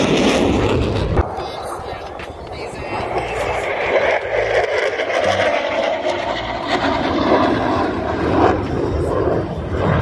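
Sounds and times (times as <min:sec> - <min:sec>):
aircraft flying overhead: 0:00.0 - 0:10.0.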